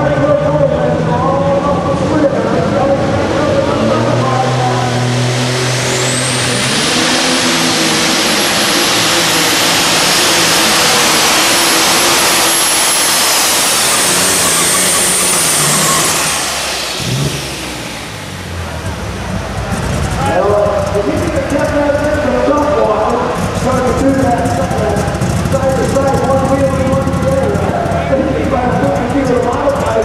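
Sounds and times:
tractor engine roaring at full throttle: 0.0s - 30.0s
thin high whine: 5.5s - 18.6s.

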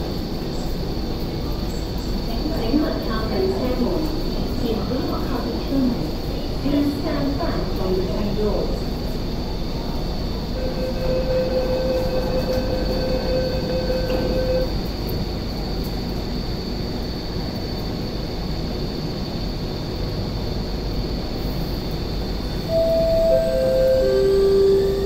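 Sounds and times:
train hum with high whine: 0.0s - 25.0s
door-closing warning tone: 10.6s - 14.8s, 22.7s - 25.0s.

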